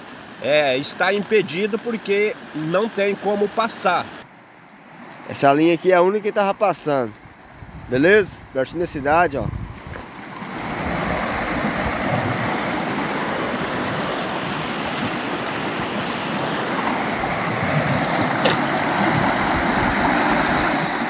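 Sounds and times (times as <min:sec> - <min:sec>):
creek water rushing: 0:00.0 - 0:08.9, 0:09.6 - 0:21.0.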